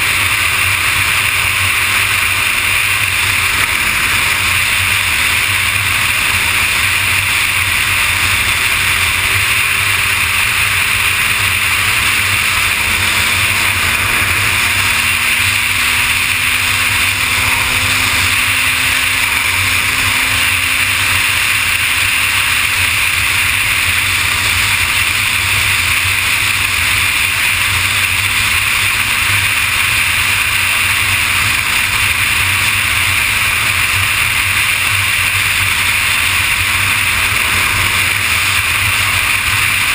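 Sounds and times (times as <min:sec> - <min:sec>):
motorcycle engine hum: 0:00.0 - 0:39.9
road noise: 0:00.0 - 0:39.9
wind rush on microphone: 0:00.0 - 0:39.9.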